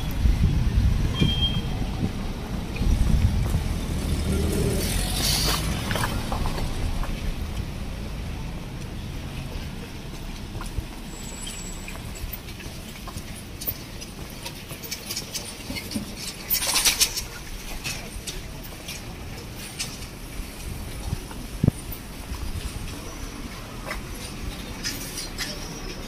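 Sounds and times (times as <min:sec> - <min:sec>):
motor vehicle rumble: 0:00.0 - 0:26.0.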